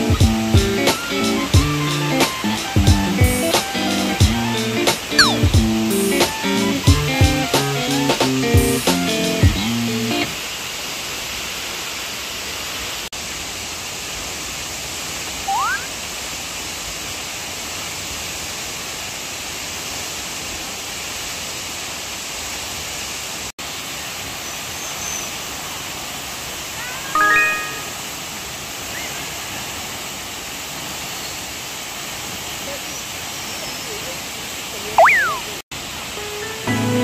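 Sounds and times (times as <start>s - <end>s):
waterfall roaring: 0.0s - 37.0s
pitched call: 5.1s - 5.6s, 15.5s - 15.9s, 35.0s - 35.5s
short rising whistle: 5.2s - 5.5s, 15.5s - 15.9s.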